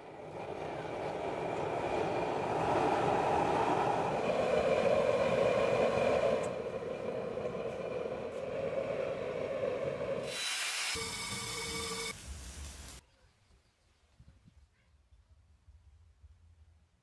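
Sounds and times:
faint high whine: 10.3 - 12.2.

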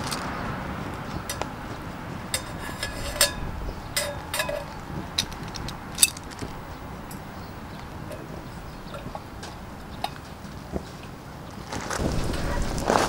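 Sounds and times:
metal can clinking on pot support: 2.3 - 6.4.

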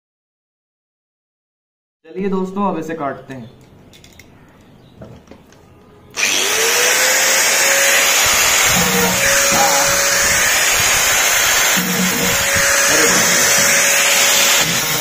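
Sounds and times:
angle grinder whining: 6.1 - 15.0
grinder disc cutting metal: 6.1 - 15.0.

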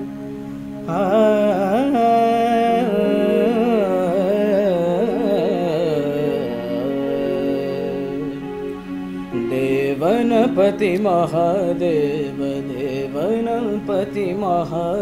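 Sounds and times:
steady keyboard drone: 0.0 - 15.0
man singing wordless vocal: 0.9 - 8.6, 9.4 - 15.0.

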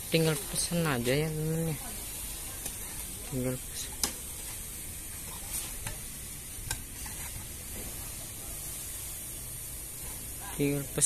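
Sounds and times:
outdoor background hiss: 0.0 - 11.0.

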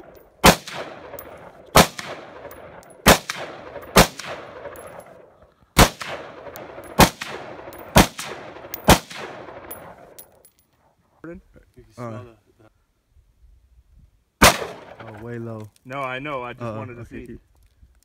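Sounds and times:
rifle shots with echo: 0.0 - 10.2, 14.4 - 15.2.

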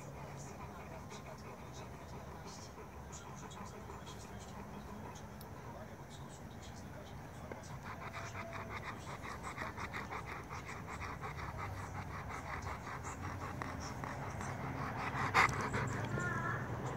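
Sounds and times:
dog panting: 0.0 - 16.9.

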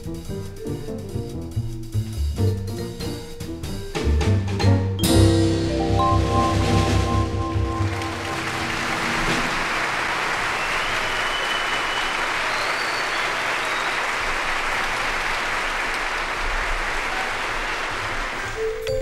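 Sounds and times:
crowd clapping: 6.3 - 19.0.

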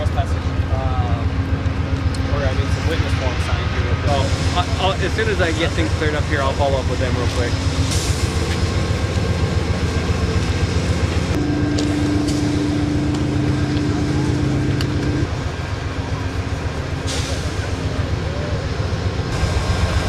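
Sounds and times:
diesel locomotive idling: 0.0 - 20.0
higher steady tone: 11.2 - 16.6.

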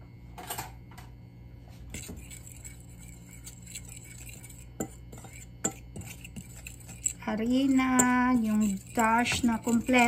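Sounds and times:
fork scraping in a bowl: 1.9 - 10.0
fork clicking against bowl: 2.0 - 10.0.

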